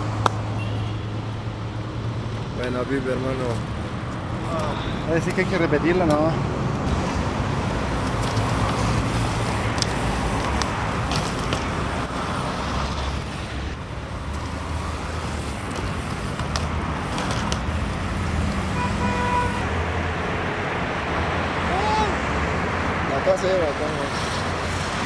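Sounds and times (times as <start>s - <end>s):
road traffic rumble: 0.0s - 25.0s
car horn toot: 18.8s - 19.6s.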